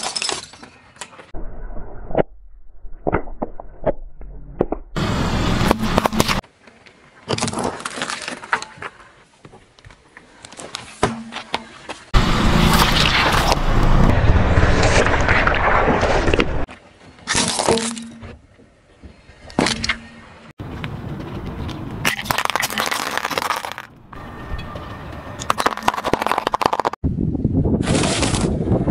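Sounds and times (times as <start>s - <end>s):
car tyre crushing objects: 5.5s - 6.4s, 22.0s - 24.2s, 25.4s - 27.0s.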